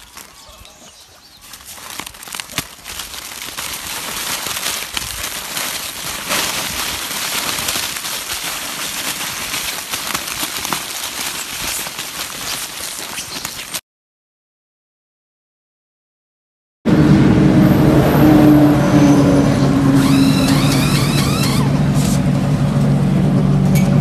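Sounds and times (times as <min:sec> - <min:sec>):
plastic wrappers crinkling: 0:00.0 - 0:13.8, 0:20.0 - 0:22.2.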